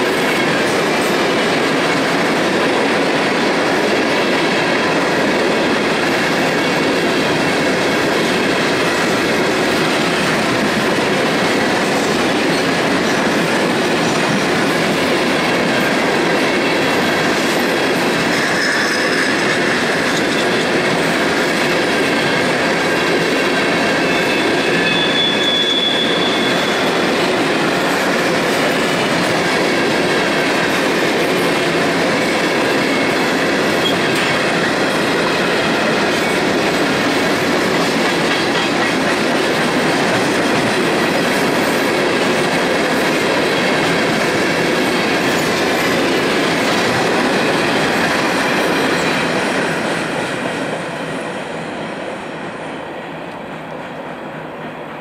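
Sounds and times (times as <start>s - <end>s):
train wheels rumbling and rattling: 0.0s - 55.0s
high wheel squeal: 24.0s - 27.0s.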